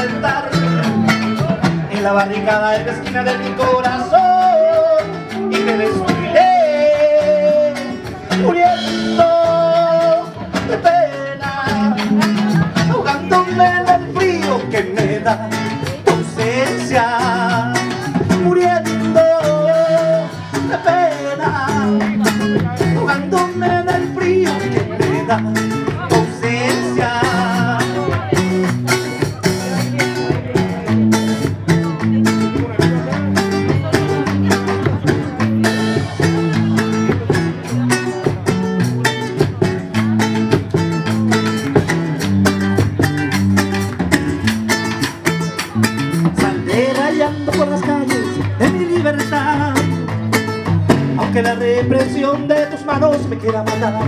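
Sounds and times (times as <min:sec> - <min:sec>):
drum kit beat with cymbals: 0:00.0 - 0:54.0
strummed acoustic guitar chords: 0:00.0 - 0:54.0.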